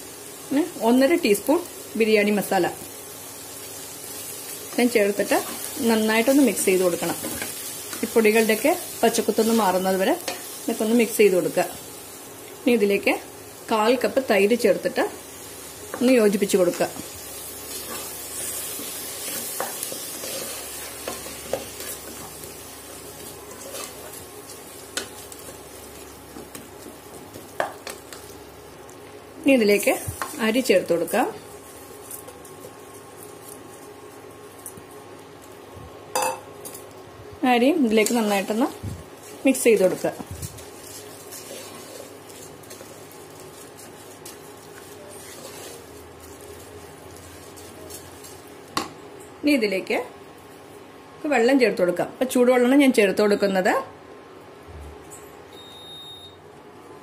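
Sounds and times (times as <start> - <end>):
frying sizzle: 0.0 - 50.8
spatula scraping and stirring: 15.9 - 28.3, 37.9 - 48.6
spatula scraping a pot: 17.7 - 22.2, 40.7 - 46.0.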